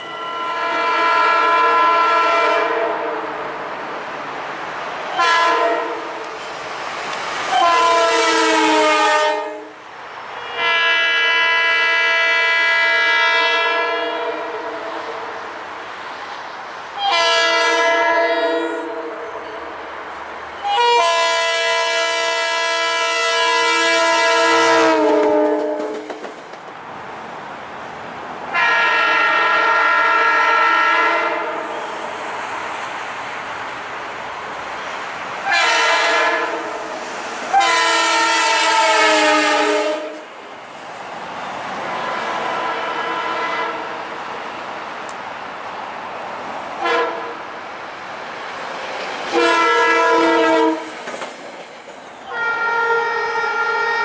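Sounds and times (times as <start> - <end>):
train horn blasts: 0.0 - 3.6, 5.1 - 6.2, 7.5 - 9.8, 10.4 - 15.4, 17.0 - 19.6, 20.6 - 26.1, 28.5 - 32.2, 35.4 - 36.9, 37.5 - 40.3, 41.9 - 44.0, 46.8 - 47.4, 49.3 - 50.9, 52.2 - 54.0.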